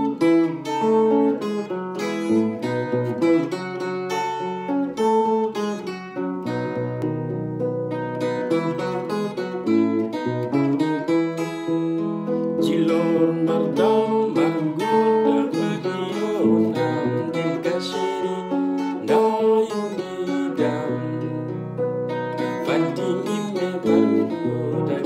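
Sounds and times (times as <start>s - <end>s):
clean electric guitar fingerpicked: 0.0s - 25.0s.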